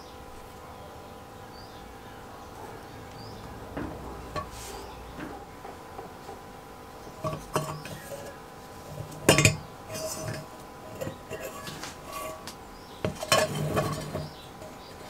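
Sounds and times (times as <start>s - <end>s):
metal tank clinking on stand: 3.7s - 4.6s, 7.2s - 8.3s, 9.0s - 12.4s, 13.0s - 14.4s.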